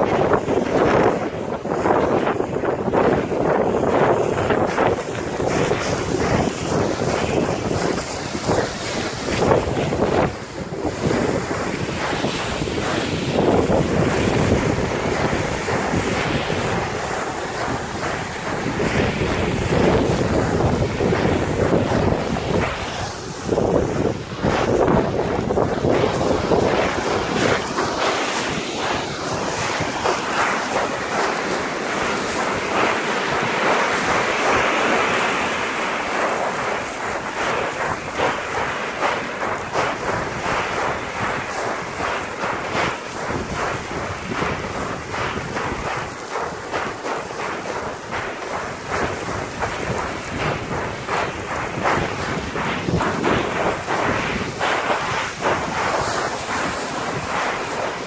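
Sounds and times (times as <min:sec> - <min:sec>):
wind buffeting microphone: 0:00.0 - 0:58.0
board sliding on gravel: 0:00.2 - 0:58.0
board scraping down gravel: 0:39.1 - 0:58.0.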